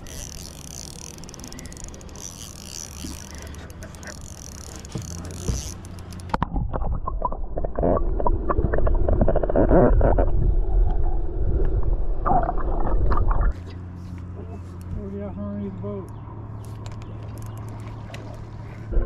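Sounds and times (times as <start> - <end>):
water gurgling: 3.0 - 13.6
muffled low underwater rumble: 6.4 - 19.0.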